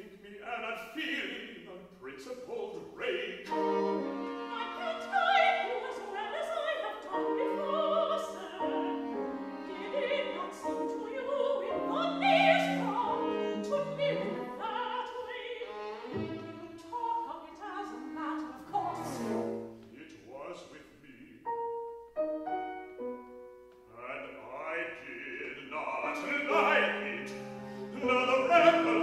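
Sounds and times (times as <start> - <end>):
operatic singing: 0.0 - 21.4, 23.9 - 29.0
violin and cello: 3.0 - 20.0, 24.7 - 29.0.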